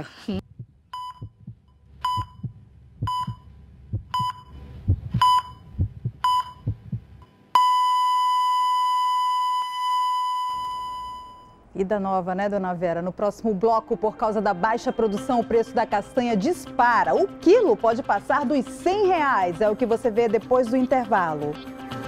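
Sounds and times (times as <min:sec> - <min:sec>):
heart monitor beeps: 0:00.4 - 0:07.0, 0:07.6 - 0:11.6
low heartbeat thumps: 0:00.4 - 0:07.2
flatline tone: 0:07.2 - 0:11.6.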